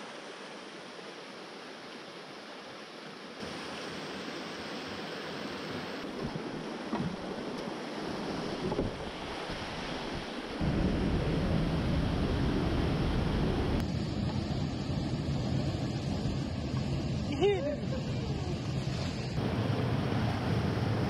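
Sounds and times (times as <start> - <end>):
wind buffeting microphone: 8.3 - 13.8
creek water rushing over rapids: 19.1 - 21.0.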